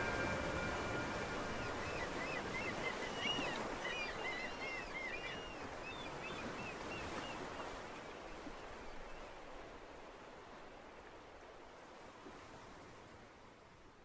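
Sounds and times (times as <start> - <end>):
birds chirping: 0.0 - 6.3
sea surf: 0.0 - 13.3.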